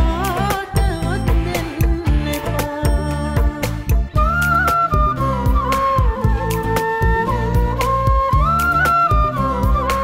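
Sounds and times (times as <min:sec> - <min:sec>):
bass: 0:00.0 - 0:10.0
flute melody: 0:03.9 - 0:10.0.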